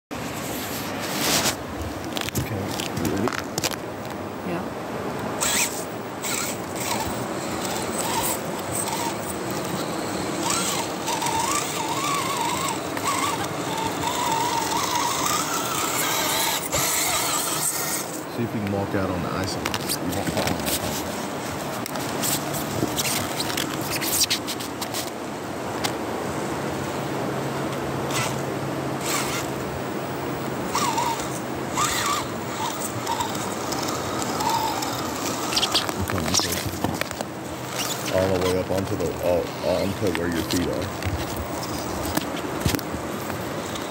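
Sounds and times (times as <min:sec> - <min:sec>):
electric motor whining: 0:05.2 - 0:18.4, 0:28.0 - 0:29.8, 0:30.4 - 0:42.8.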